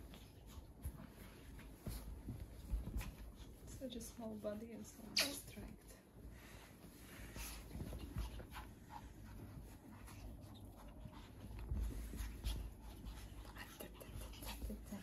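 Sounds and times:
soft bumps from handling: 0.0 - 4.7
rustling of bedding: 0.0 - 15.0
otters snuffling breaths: 3.2 - 15.0.

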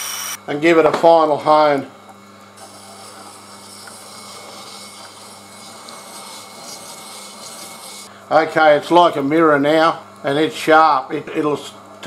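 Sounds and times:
sharpener motor humming: 0.0 - 0.4, 2.6 - 8.1
steel hissing on wet stone: 2.6 - 8.1.

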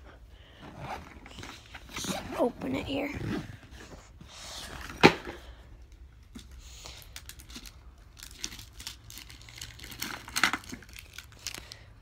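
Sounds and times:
packaging rustling and clicking: 6.2 - 11.9
box sharp crack: 8.2 - 11.6.

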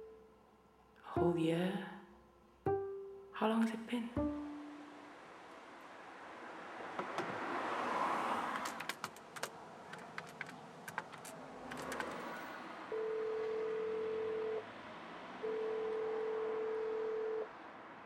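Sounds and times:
telephone ringing tone: 12.9 - 14.6, 15.4 - 17.5.

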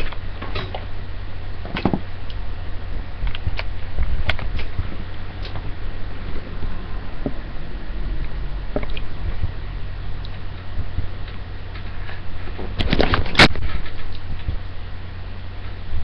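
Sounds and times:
microphone low hum: 0.0 - 16.0
computer handling clicks and rustles: 12.5 - 14.3.

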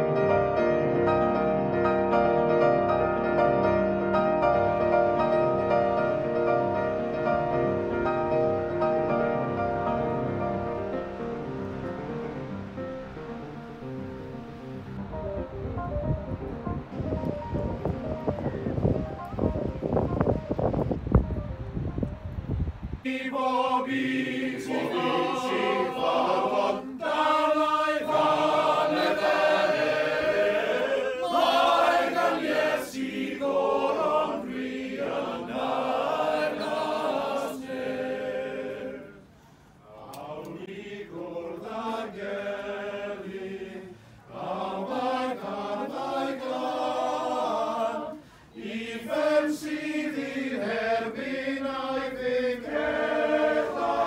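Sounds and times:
male choir singing in harmony: 4.2 - 11.6, 23.0 - 54.0.

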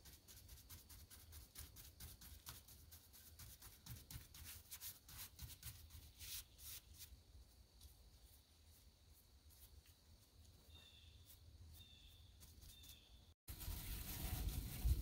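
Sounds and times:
paintbrush swishing on wood: 0.0 - 7.1, 11.2 - 15.0.

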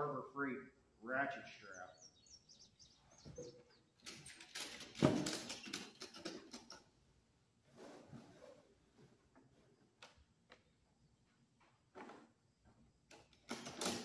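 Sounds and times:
bird chirping: 1.2 - 4.5
metal ratchet clattering: 4.0 - 6.8.

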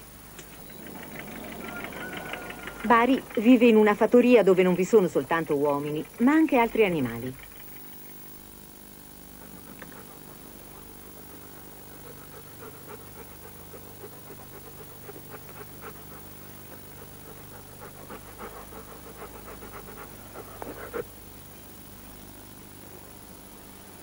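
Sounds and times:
low hum: 0.0 - 12.8
dog panting: 0.6 - 8.5, 9.2 - 21.2.

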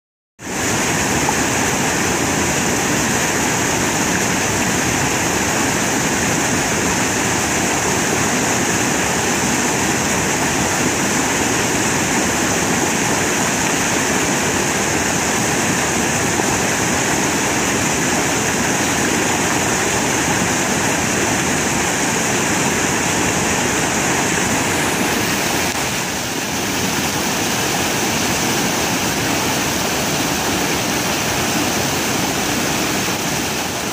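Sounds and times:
water rushing over rocks: 0.4 - 33.9.

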